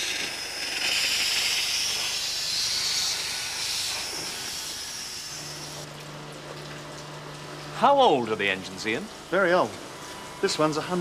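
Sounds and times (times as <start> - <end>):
steam hissing: 0.0 - 5.8.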